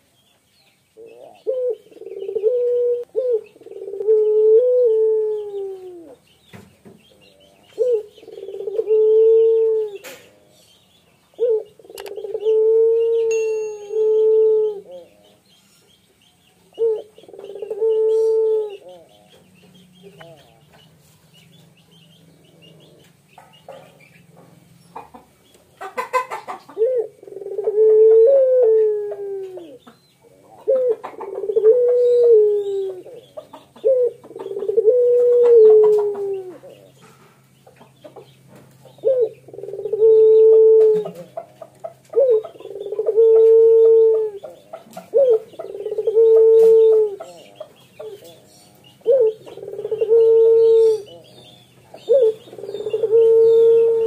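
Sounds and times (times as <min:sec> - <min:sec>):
dove cooing: 0:01.0 - 0:06.3, 0:07.2 - 0:10.6, 0:11.3 - 0:15.4, 0:16.7 - 0:20.7, 0:22.2 - 0:24.0, 0:25.0 - 0:37.3, 0:38.1 - 0:54.0.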